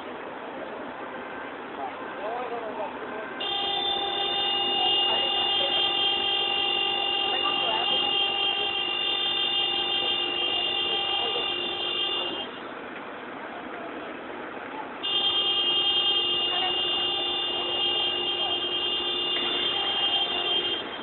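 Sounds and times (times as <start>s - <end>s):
car horn steady tone: 3.2s - 12.7s, 15.0s - 21.0s.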